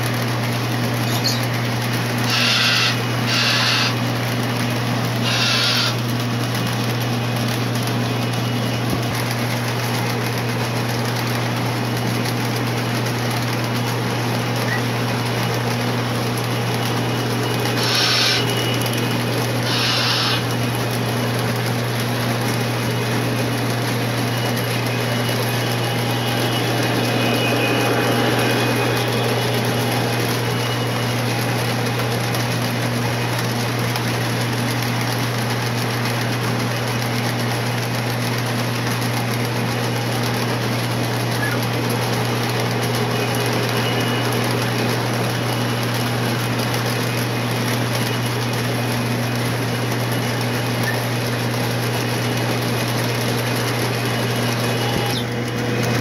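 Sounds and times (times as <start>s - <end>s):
model train running: 0.0s - 56.0s
constant low hum: 16.3s - 33.5s.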